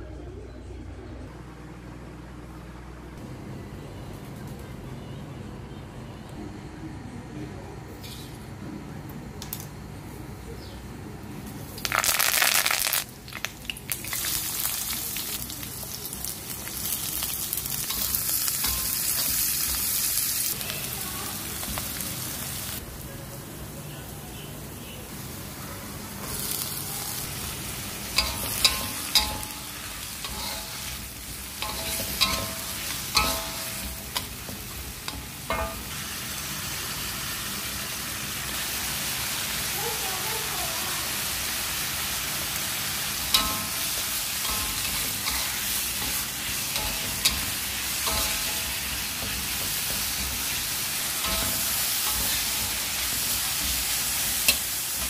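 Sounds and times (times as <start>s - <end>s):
vegetables sizzling in oil: 11.6s - 23.0s, 25.1s - 55.0s
metal spatula scraping pan: 28.2s - 34.3s.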